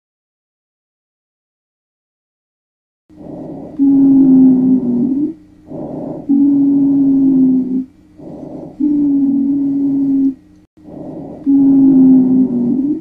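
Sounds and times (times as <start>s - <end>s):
wheezing breath: 3.2s - 13.0s.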